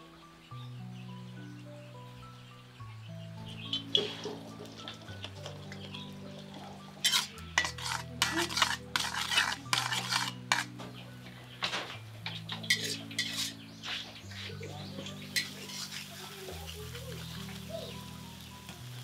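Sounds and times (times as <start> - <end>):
soft background music: 0.0 - 19.0
metal spatula scraping wok: 7.0 - 11.0, 12.3 - 14.5, 15.1 - 16.4.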